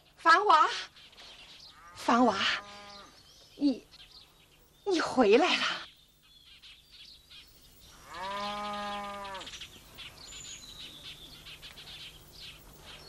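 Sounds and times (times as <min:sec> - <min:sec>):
faint bird chirps: 0:00.0 - 0:13.0
cow mooing: 0:01.8 - 0:03.1, 0:08.0 - 0:09.5.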